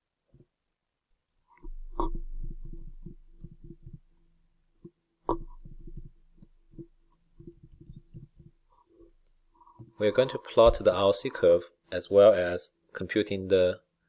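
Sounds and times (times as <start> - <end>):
low hum: 1.6 - 9.7.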